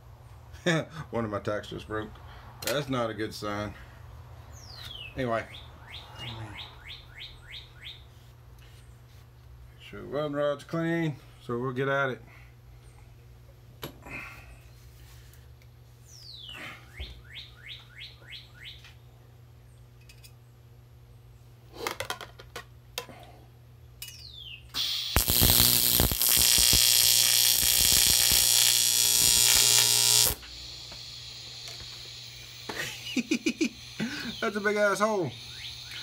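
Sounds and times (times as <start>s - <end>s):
welding arc buzzing hiss: 24.8s - 36.0s.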